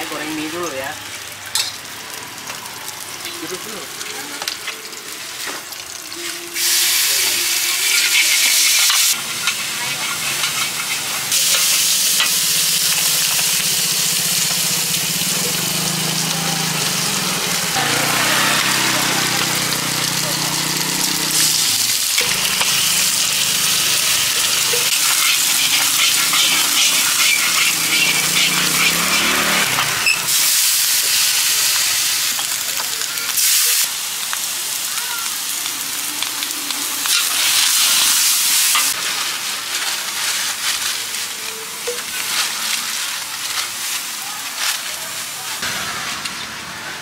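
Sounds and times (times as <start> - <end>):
food sizzling in a wok: 0.0 - 47.0
metal spatula scraping wok: 6.2 - 13.5, 17.9 - 30.5.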